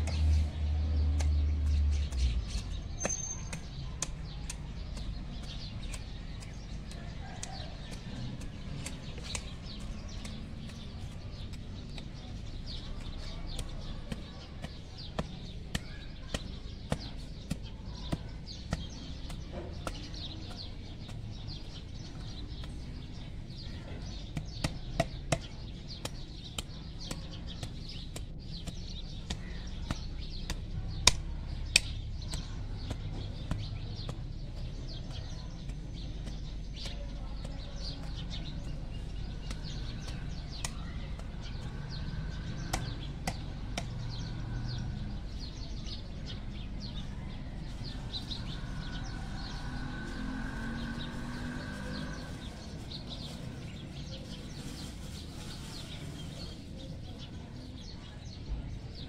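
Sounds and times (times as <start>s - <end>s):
hand hoe chopping dry soil: 0.0s - 44.8s
birds chirping: 0.0s - 59.0s.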